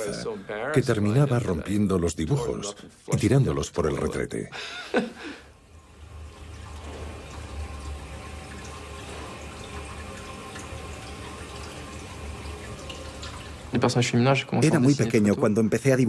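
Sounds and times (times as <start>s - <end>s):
toilet flushing: 4.9s - 16.0s.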